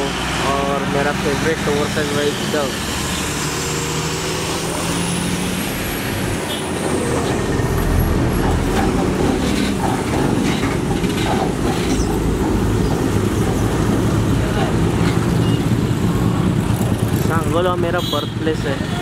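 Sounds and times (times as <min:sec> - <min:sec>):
rumble of engine and wheels: 0:00.0 - 0:19.0.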